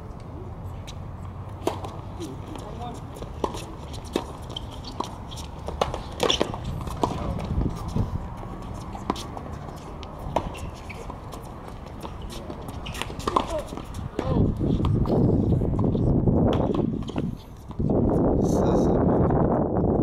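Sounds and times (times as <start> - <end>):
tennis ball bouncing: 0.8 - 17.9
rackets striking tennis ball: 0.9 - 17.8.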